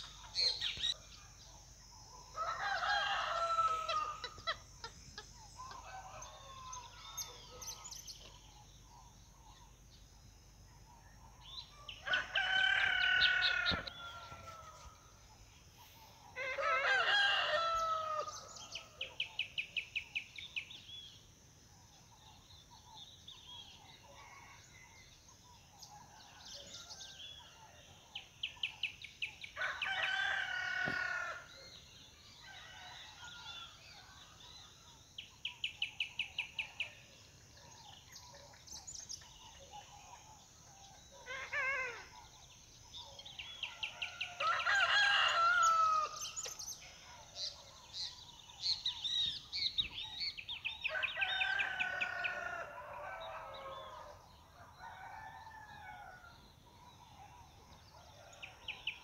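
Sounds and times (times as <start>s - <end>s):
rooster crowing: 2.4s - 4.4s, 5.6s - 7.7s, 12.0s - 15.0s, 16.4s - 18.8s, 29.6s - 31.5s, 43.9s - 46.2s, 50.8s - 56.3s.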